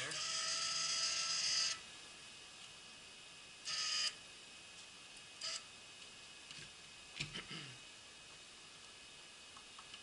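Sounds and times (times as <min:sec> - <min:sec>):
electric actuator whirring: 0:00.0 - 0:01.9, 0:03.6 - 0:04.2.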